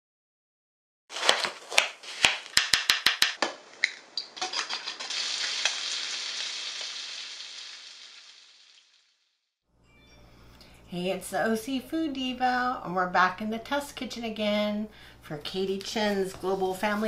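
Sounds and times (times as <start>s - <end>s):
bacon sizzling in a frying pan: 4.4s - 9.0s.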